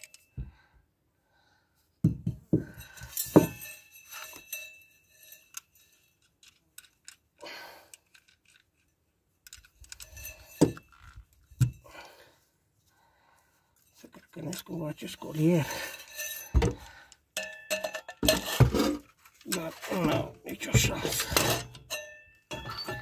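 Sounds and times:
metal pipe scraping: 2.6 - 6.4, 9.8 - 12.0, 13.8 - 23.0
metal exhaust parts clanking: 15.6 - 23.0.

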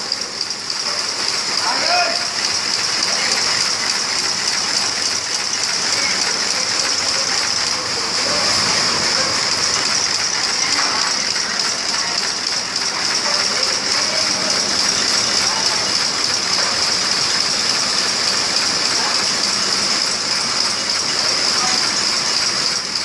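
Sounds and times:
tufting machine clattering: 0.0 - 23.0.

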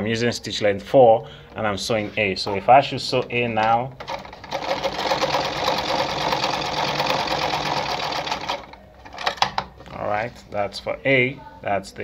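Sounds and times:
sewing machine running: 4.0 - 9.4.

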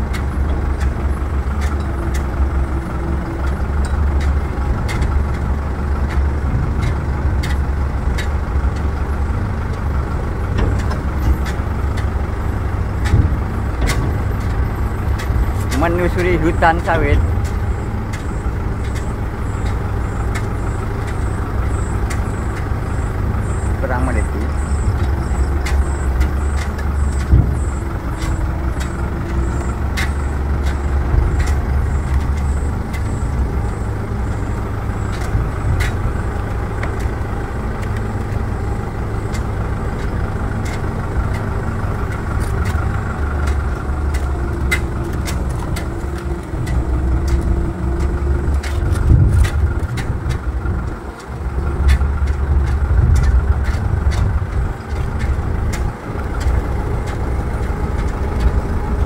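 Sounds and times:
rattling clicks: 0.0 - 59.0
vehicle engine and road rumble: 0.0 - 59.0.

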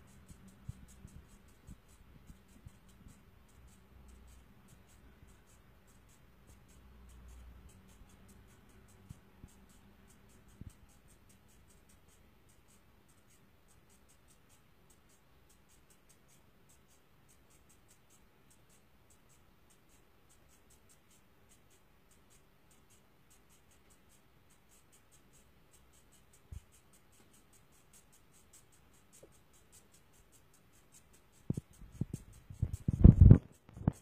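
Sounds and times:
faint high ticking: 0.0 - 34.0.

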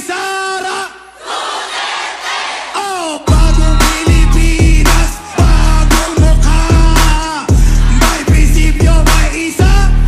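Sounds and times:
crowd cheering and shouting: 1.2 - 8.5.

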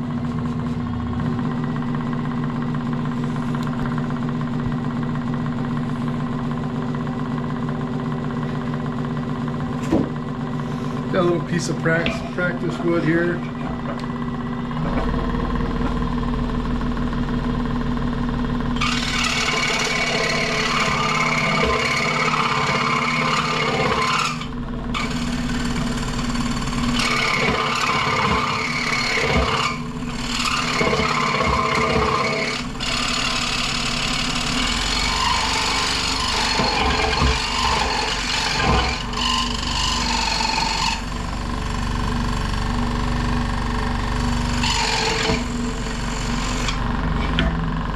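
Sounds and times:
motor humming: 0.0 - 47.9
saw blade rasping through wood: 18.8 - 41.2, 44.3 - 46.8.

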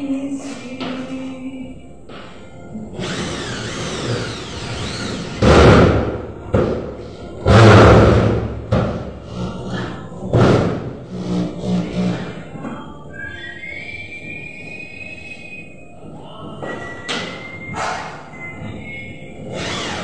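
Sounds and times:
faint song playing: 0.0 - 20.0
power drill on metal: 3.0 - 5.4, 19.5 - 20.0.

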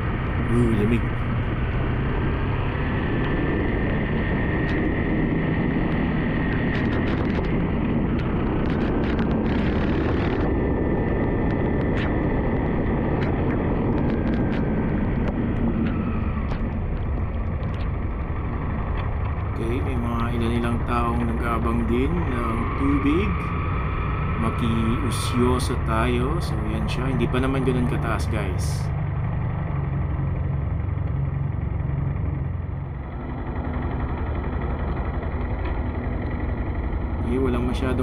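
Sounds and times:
motorcycle engine running: 0.0 - 21.1, 28.9 - 38.0.

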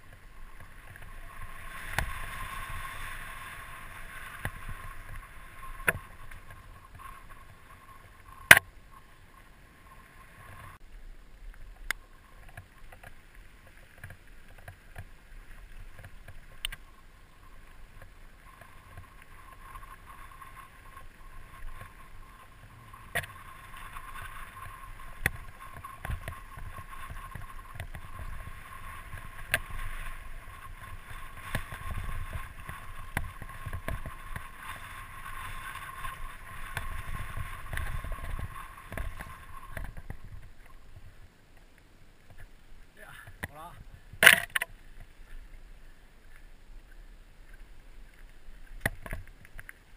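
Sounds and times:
tyre and wind noise: 0.0 - 9.1, 9.8 - 49.9
mountain bike rattling: 0.0 - 9.2, 12.0 - 41.0
bike knocking on bumps: 23.0 - 41.0.

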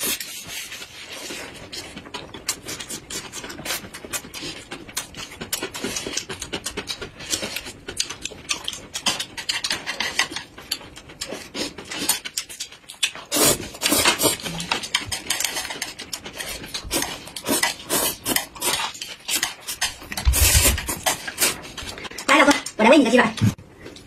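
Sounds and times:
chewing and lip-smacking: 0.0 - 22.8
noodles slurped: 13.2 - 14.5, 15.4 - 21.7.

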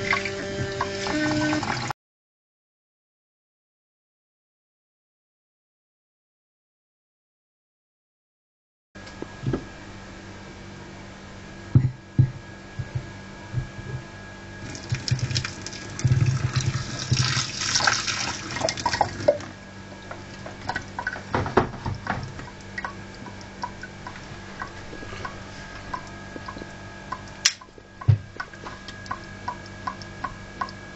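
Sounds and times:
faint steady hum: 9.0 - 30.9
water splashing: 14.6 - 27.6.

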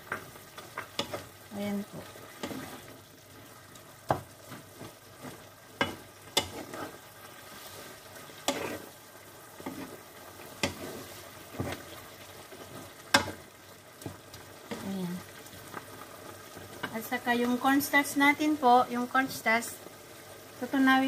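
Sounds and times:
faint frying sizzle: 0.0 - 21.0
wooden spatula scraping pan: 1.9 - 3.0, 4.1 - 9.0, 9.6 - 13.4.

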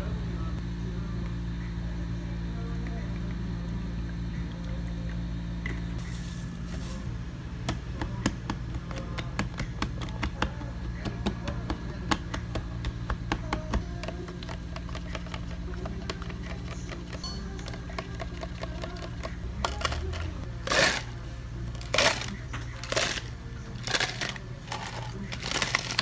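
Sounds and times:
low hum: 0.0 - 26.0
straws clicking against plastic cups: 7.7 - 21.1, 21.8 - 26.0.

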